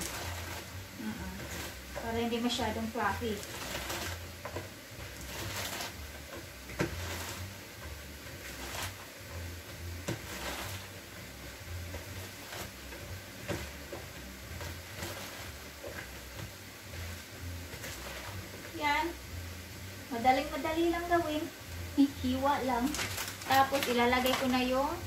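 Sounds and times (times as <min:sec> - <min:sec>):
lettuce crunching and rustling: 0:00.0 - 0:09.1, 0:10.0 - 0:18.7, 0:22.7 - 0:24.7.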